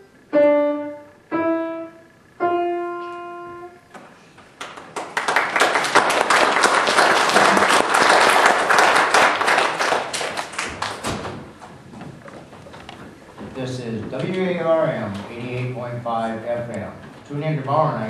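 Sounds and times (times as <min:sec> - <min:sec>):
piano chord ringing: 0:00.0 - 0:03.9
audience applauding: 0:04.6 - 0:11.1.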